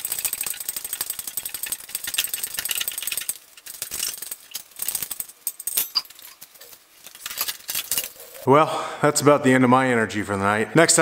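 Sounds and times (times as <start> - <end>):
engine hoist chain clicking and rattling: 0.0 - 8.4.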